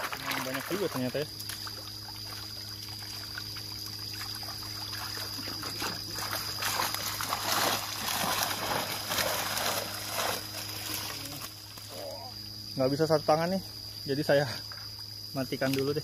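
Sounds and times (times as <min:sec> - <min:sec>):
fish thrashing and splashing water: 0:00.0 - 0:11.8
steady hum: 0:00.0 - 0:16.0.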